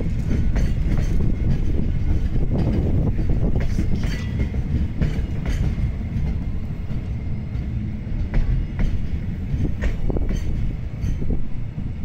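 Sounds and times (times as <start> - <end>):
wheels clacking over rail joints: 0.0 - 11.4
train wheels rumbling on rails: 0.0 - 12.0.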